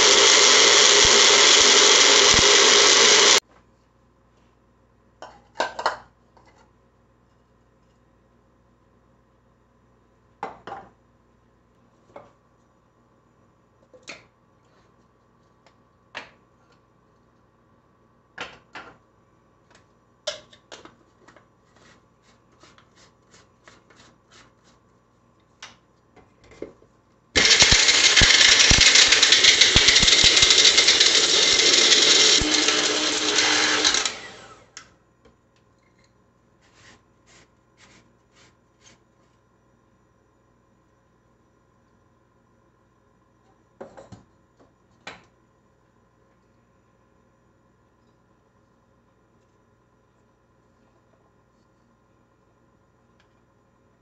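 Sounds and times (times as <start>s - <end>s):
electric blender grinding: 0.0s - 3.4s, 27.4s - 34.7s.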